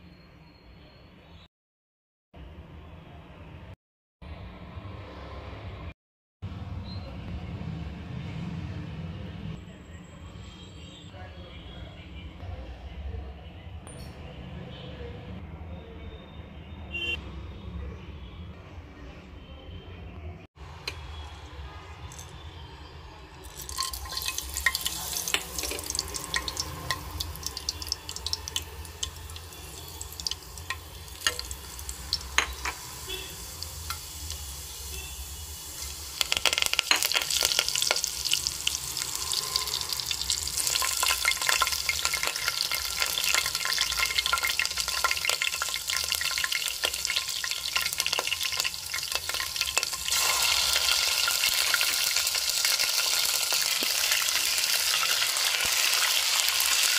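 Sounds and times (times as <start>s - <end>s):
spices sizzling in hot oil: 23.4s - 56.9s.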